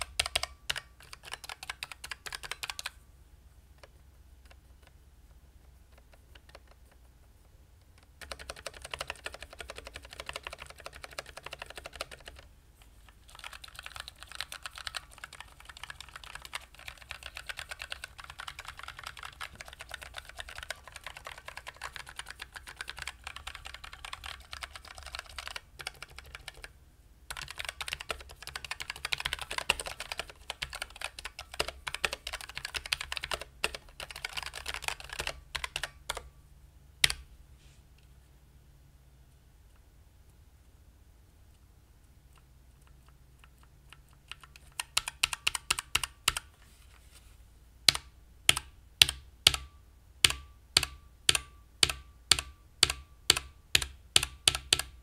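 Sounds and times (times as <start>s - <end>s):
mechanical keyboard typing: 0.0s - 3.0s, 5.6s - 7.1s, 8.0s - 12.5s, 13.1s - 36.3s, 37.0s - 37.2s, 42.3s - 46.5s, 47.9s - 55.0s.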